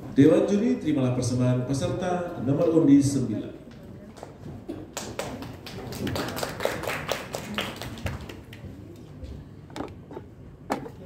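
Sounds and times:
audience clapping: 4.9 - 8.8.

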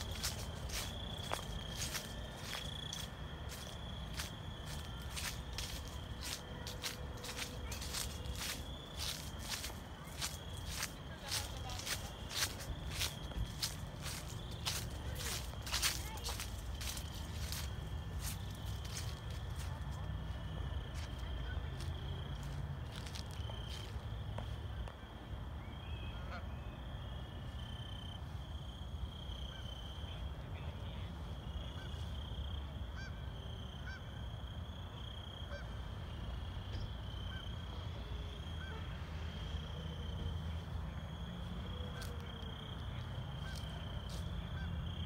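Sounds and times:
high insect trill: 0.0 - 19.6.

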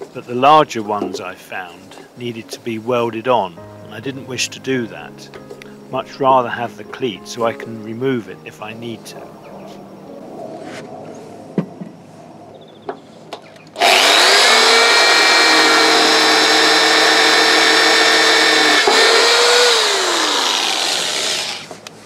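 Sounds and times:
electric drill drilling into steel: 13.8 - 21.7.

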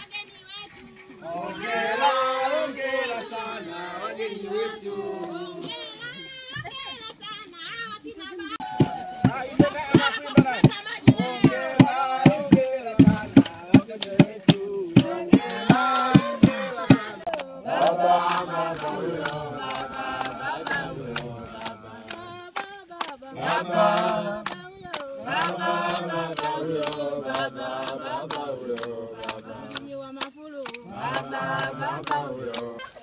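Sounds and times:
crowd singing together: 0.8 - 6.9, 8.6 - 33.0
rhythmic hand clapping: 1.6 - 5.9, 8.8 - 32.9.

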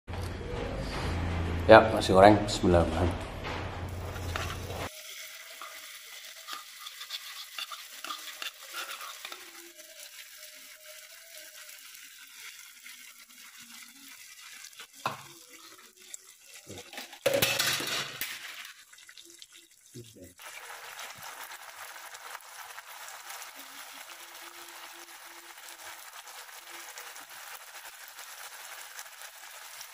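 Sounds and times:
spatula stirring and scraping: 3.9 - 5.0, 5.6 - 10.7
sambal sizzling in oil: 3.9 - 29.9.

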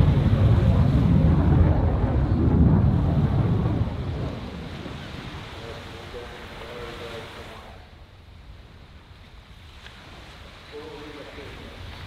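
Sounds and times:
jet engines rumbling: 0.0 - 8.1.

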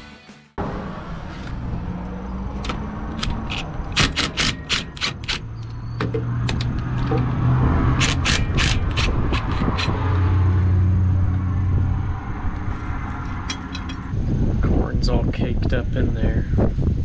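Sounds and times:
impact driver rattling bursts: 3.2 - 7.2, 7.9 - 10.0.

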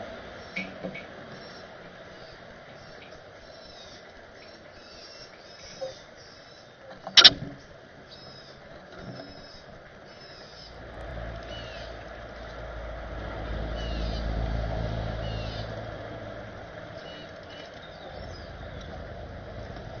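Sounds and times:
passing engine rumble: 10.4 - 20.0.

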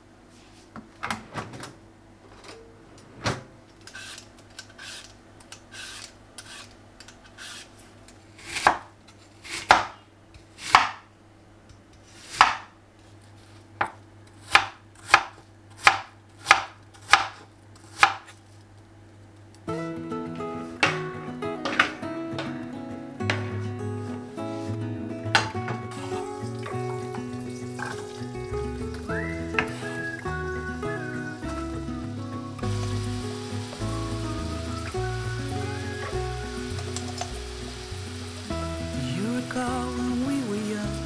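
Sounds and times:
knife chopping on wooden board: 9.6 - 10.0, 10.7 - 11.0, 12.4 - 12.7, 14.5 - 18.2.

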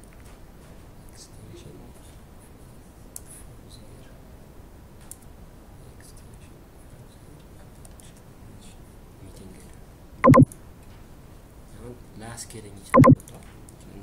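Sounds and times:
computer keyboard typing clicks: 10.2 - 10.5, 13.0 - 13.3.

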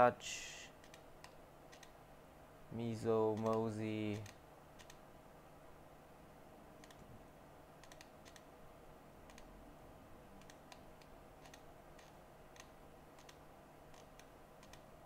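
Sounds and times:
steady low hum: 0.0 - 15.0
light sharp clicks: 3.3 - 5.0.

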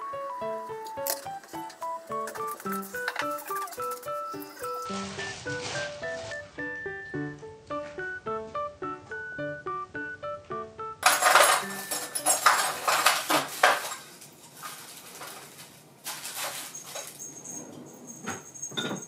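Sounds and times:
dishes and cutlery clattering: 0.9 - 4.9, 11.0 - 19.0.

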